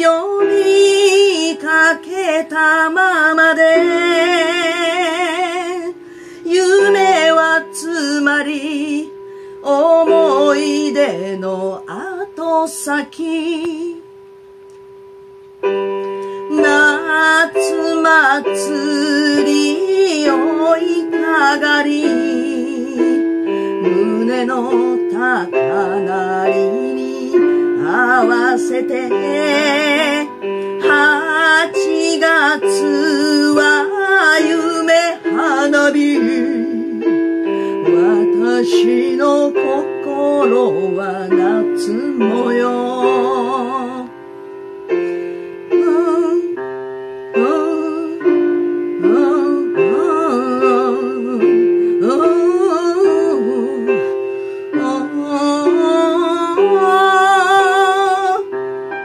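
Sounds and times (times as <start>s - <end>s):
woman singing with vibrato: 0.0s - 14.2s, 16.1s - 44.2s, 44.9s - 58.6s
electronic keyboard chords: 13.8s - 59.0s.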